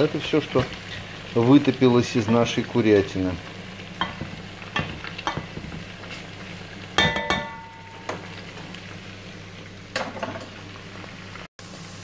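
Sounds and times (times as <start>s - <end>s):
chicken sizzling in fat: 0.0s - 12.0s
spatula clinking on metal: 7.0s - 8.2s.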